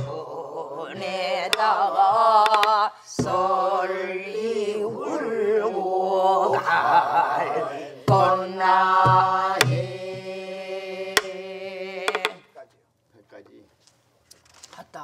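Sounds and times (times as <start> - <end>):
group singing folk song: 0.0 - 12.6
barrel drums: 0.9 - 4.0, 6.6 - 10.5, 11.1 - 12.6.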